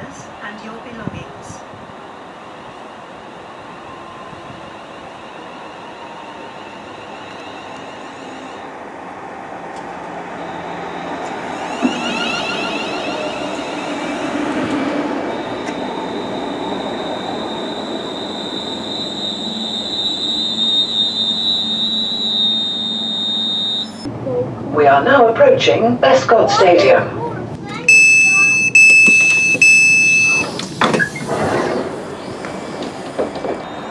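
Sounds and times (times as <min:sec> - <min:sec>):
electric train slowing to stop: 0:00.0 - 0:24.4, 0:27.8 - 0:33.9
steady high squeal: 0:01.6 - 0:09.4, 0:10.2 - 0:24.1, 0:27.8 - 0:33.9.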